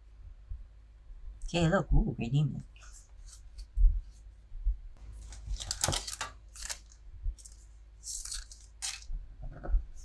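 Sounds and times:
trading cards rustling: 0:05.0 - 0:09.1.

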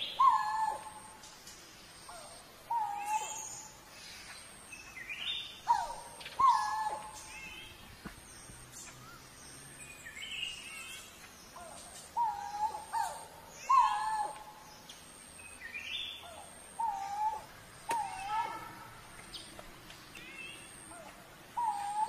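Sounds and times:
bird hooting notes: 0:00.0 - 0:01.2, 0:05.6 - 0:07.3, 0:20.7 - 0:22.0
faint high bird chirps: 0:02.0 - 0:07.8.

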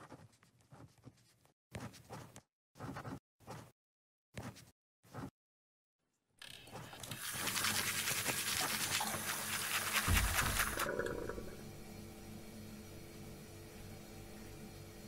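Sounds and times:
toothbrush scrubbing teeth: 0:06.8 - 0:11.0.

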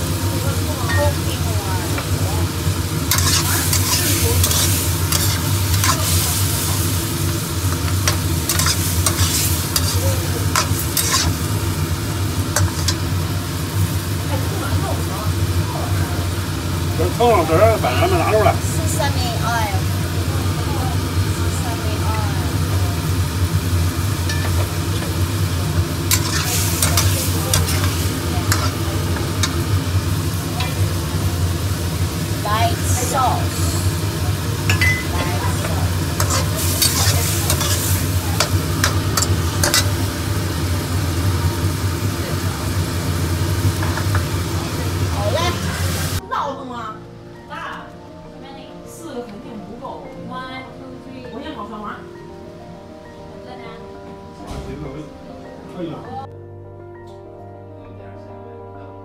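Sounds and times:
food sizzling in a wok: 0:00.0 - 0:46.9
spatula scraping pan: 0:03.1 - 0:06.8, 0:07.7 - 0:11.4, 0:26.1 - 0:28.8, 0:36.1 - 0:40.0.

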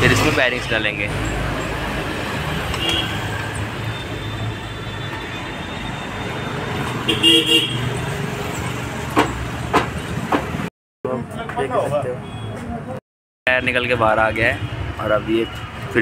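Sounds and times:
road traffic: 0:00.0 - 0:16.0
vehicle horn toots: 0:02.8 - 0:03.4, 0:07.0 - 0:07.9
sharp knock: 0:09.1 - 0:10.5.

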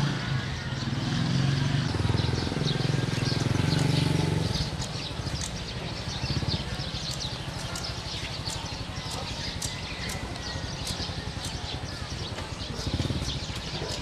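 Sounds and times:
birds chirping: 0:00.0 - 0:14.0
small motorcycle engine putter: 0:04.7 - 0:05.7, 0:06.4 - 0:14.0.

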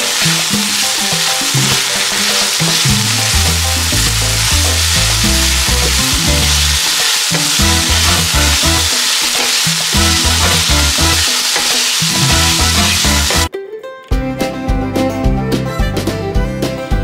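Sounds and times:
spatula stirring in pan: 0:00.0 - 0:13.5
stir-fry sizzling in pan: 0:00.0 - 0:13.5
background music: 0:00.0 - 0:17.0.

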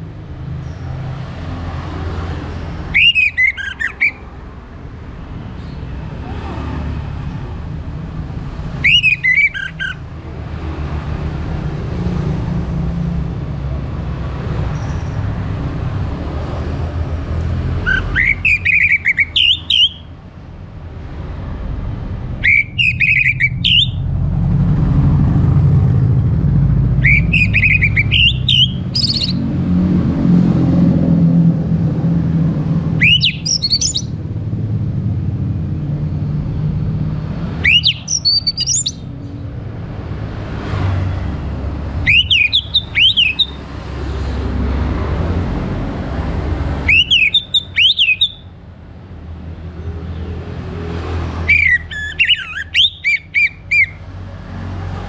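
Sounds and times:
thrush singing whistled notes: 0:02.8 - 0:04.3, 0:08.7 - 0:10.0, 0:17.8 - 0:20.1, 0:22.4 - 0:24.1, 0:26.9 - 0:29.5, 0:33.0 - 0:34.2, 0:37.5 - 0:39.2, 0:42.0 - 0:43.6, 0:46.8 - 0:48.5, 0:51.4 - 0:54.0
low engine rumble: 0:23.4 - 0:40.6.

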